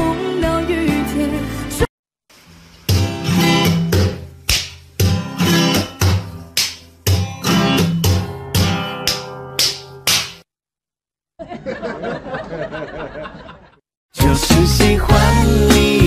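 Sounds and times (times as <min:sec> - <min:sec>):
strummed guitar chords: 0:07.1 - 0:09.6, 0:14.2 - 0:16.0.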